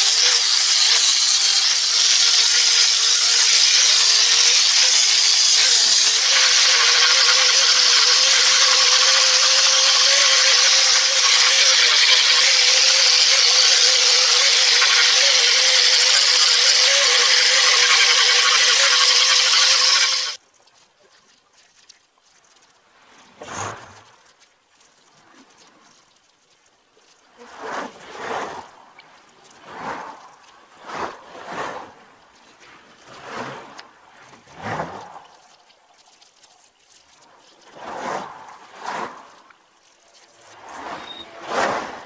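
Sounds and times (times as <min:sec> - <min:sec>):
electric grinder sanding wood: 0:00.0 - 0:20.4.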